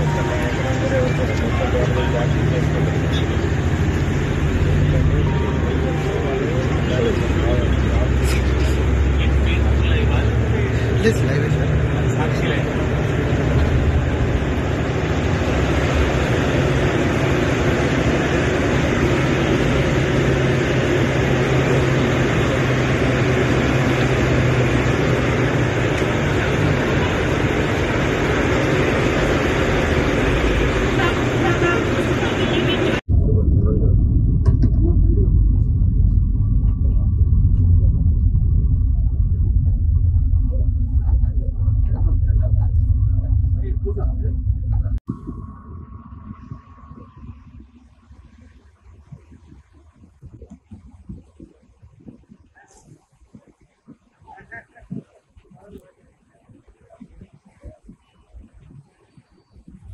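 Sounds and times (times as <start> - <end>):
bus engine and road noise: 0.0 - 59.9
steady low rumble: 0.0 - 59.9.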